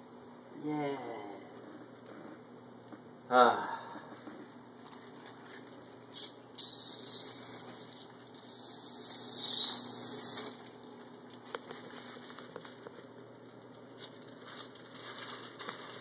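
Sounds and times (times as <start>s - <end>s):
plastic film peeling off: 10.3s - 16.0s.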